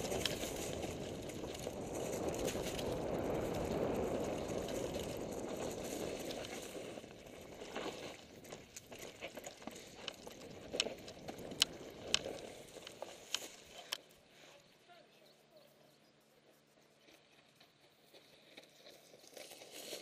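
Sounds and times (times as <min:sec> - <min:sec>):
bike tyre rumble: 0:00.0 - 0:14.0
wind on camera: 0:00.0 - 0:14.0
bike clicking and rattling: 0:00.0 - 0:14.1.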